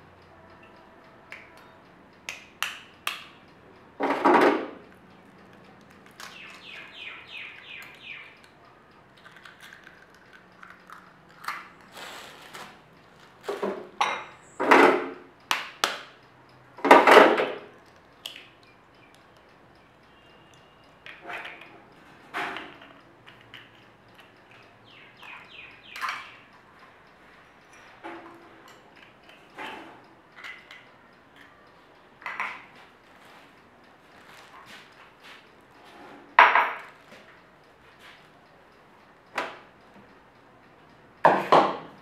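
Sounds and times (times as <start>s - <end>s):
eggshells cracking: 9.2s - 11.9s.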